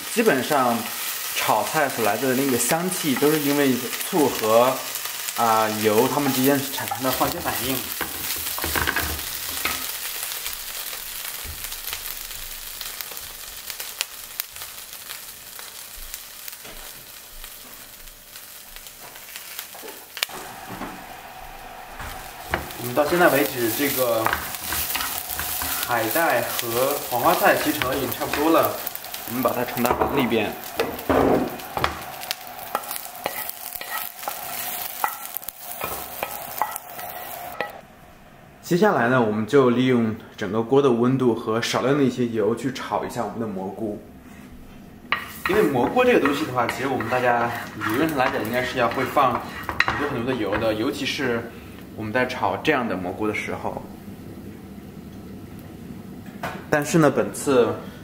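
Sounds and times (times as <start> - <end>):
food sizzling in hot oil: 0.0 - 37.9, 45.1 - 52.7
small crackles: 0.9 - 20.5, 22.1 - 37.6
wooden spatula scraping pan: 21.7 - 37.7, 45.2 - 50.8.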